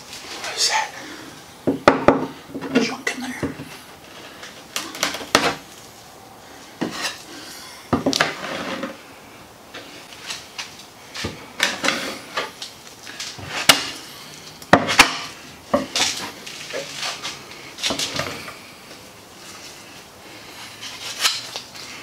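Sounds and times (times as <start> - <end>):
spreader scraping compound on wood: 8.2 - 9.0.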